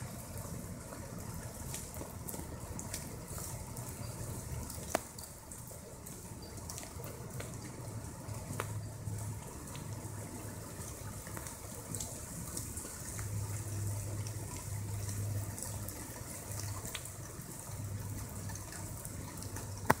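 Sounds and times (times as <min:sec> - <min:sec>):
rain on wet pavement: 0:00.0 - 0:20.0
light ticks: 0:08.5 - 0:08.8.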